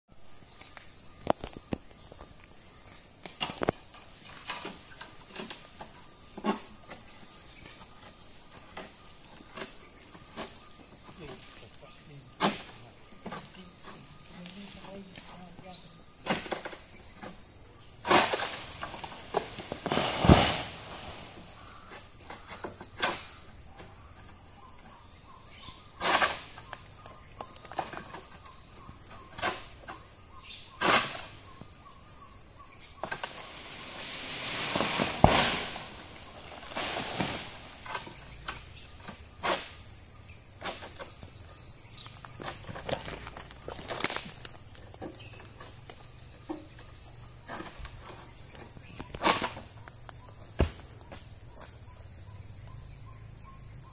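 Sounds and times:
high-pitched insect drone: 0.1s - 53.9s
rustling swishes of palm fronds: 18.0s - 21.8s, 33.0s - 38.7s.

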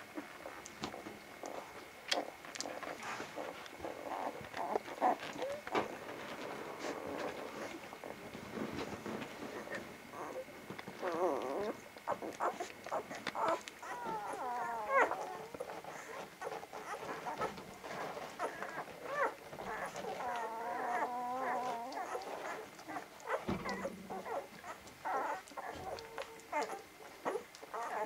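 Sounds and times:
puppies whimpering and squeaking: 0.2s - 28.0s
puppy whining: 0.2s - 28.0s
small clicks and smacks: 0.6s - 3.0s, 10.3s - 27.9s.

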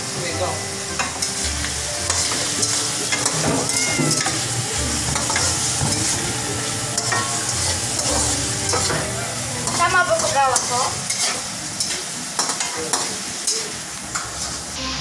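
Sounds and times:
meat sizzling in a wok: 0.0s - 14.8s
wooden spatula scraping a pan: 1.0s - 6.3s, 7.0s - 12.1s.

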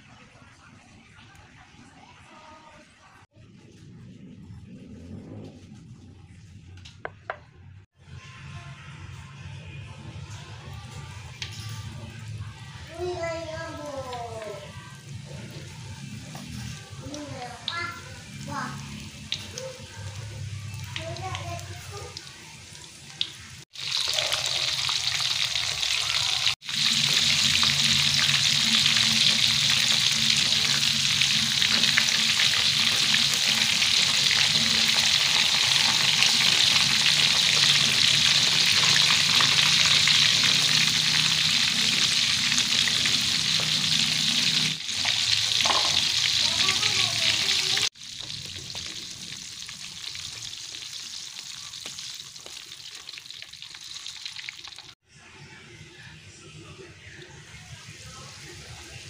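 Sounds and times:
shrimp sizzling in hot oil: 15.7s - 55.0s.

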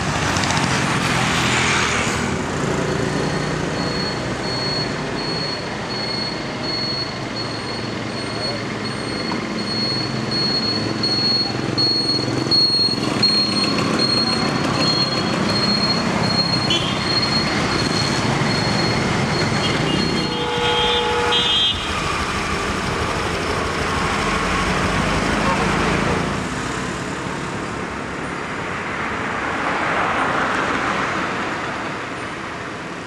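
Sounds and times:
motorcycles passing: 0.0s - 5.2s, 8.0s - 31.7s
traffic rumble: 0.0s - 33.0s
vehicle horn: 16.7s - 17.0s, 19.6s - 22.0s.

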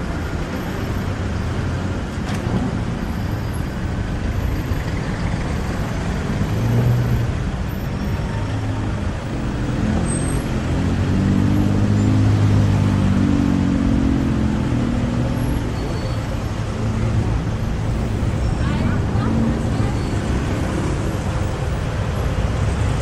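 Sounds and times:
car and truck engines running: 0.0s - 23.0s.

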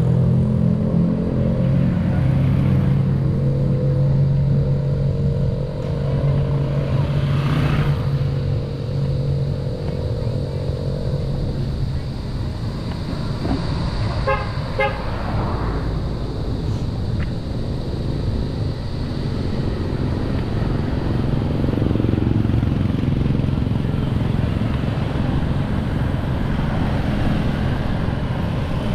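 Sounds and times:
large vehicle engine idling: 0.0s - 28.9s
vehicle horn toots: 14.2s - 15.1s.

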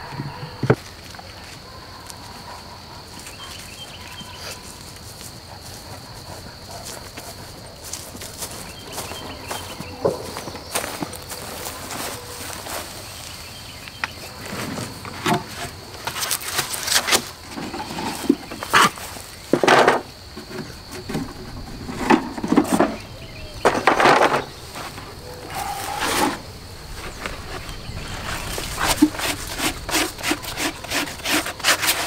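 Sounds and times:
faint high insect hum: 0.0s - 32.0s
rustling movement: 14.3s - 32.0s
wooden box knocking and scraping: 19.5s - 25.1s.

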